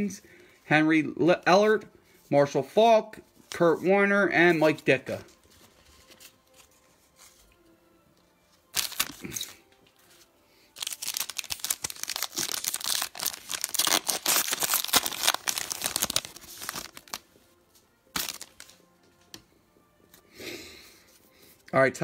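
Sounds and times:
foil wrapper tearing and crinkling: 8.7 - 9.6, 10.8 - 17.2, 18.1 - 18.8.

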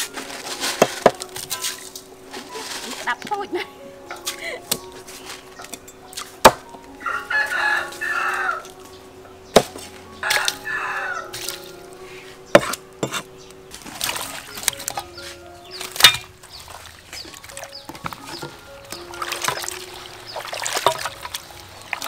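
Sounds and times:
rooster crowing: 7.0 - 8.8, 10.1 - 11.4
cleaver chopping on wooden block: 12.6 - 13.3.

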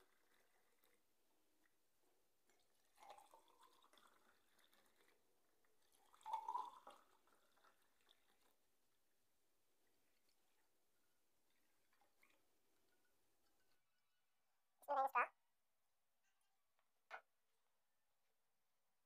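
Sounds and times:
drink pouring over ice: 2.5 - 8.6
liquid splashing into glass: 5.8 - 8.4.

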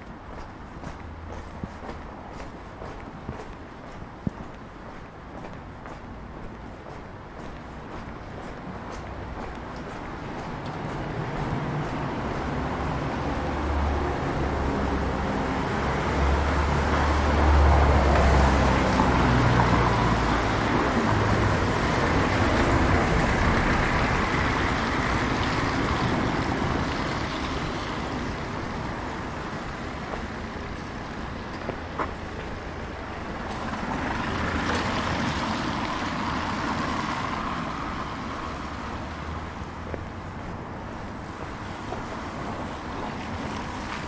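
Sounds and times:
vehicle passing by: 9.0 - 29.8.

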